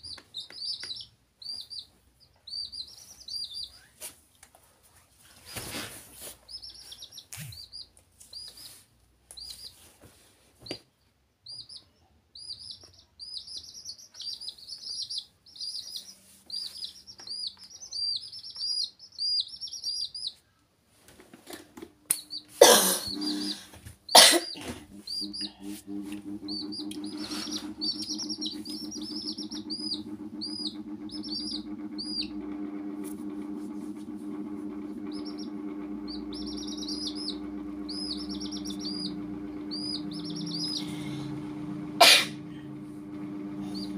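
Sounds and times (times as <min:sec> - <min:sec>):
chicks peeping: 0:00.0 - 0:04.1, 0:05.5 - 0:09.9, 0:11.4 - 0:20.6, 0:22.1 - 0:43.9
low hum: 0:24.7 - 0:43.9.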